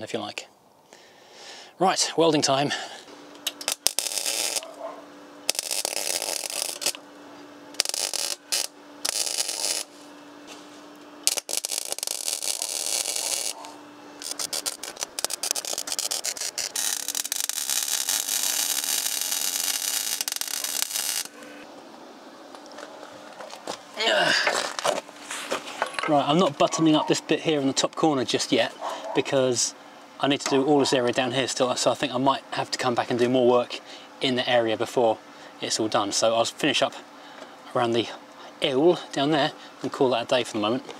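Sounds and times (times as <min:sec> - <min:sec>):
welder hum: 0:02.6 - 0:28.6
welding arc crackling: 0:03.3 - 0:10.1, 0:10.9 - 0:21.6.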